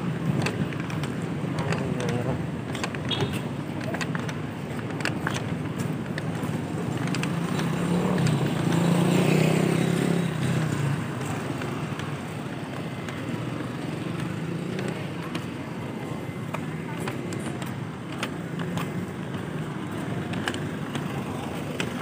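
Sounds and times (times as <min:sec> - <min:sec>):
road noise: 0:00.0 - 0:22.0
vehicle engine passing: 0:07.3 - 0:11.5.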